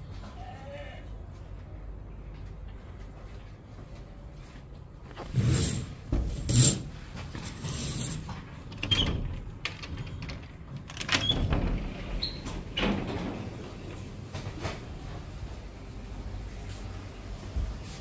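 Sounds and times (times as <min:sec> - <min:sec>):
footsteps: 0:01.3 - 0:08.6.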